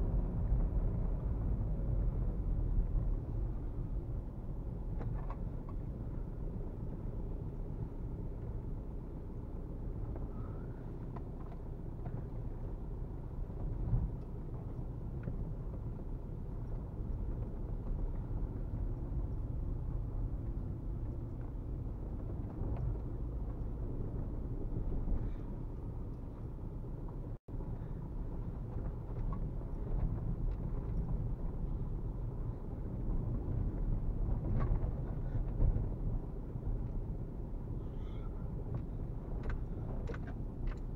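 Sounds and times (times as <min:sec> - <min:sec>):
car cabin rumble on dirt track: 0:00.0 - 0:40.9.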